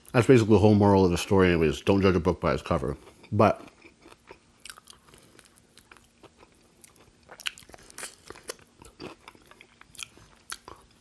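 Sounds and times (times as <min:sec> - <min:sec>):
crunching fried food: 0:02.5 - 0:11.0.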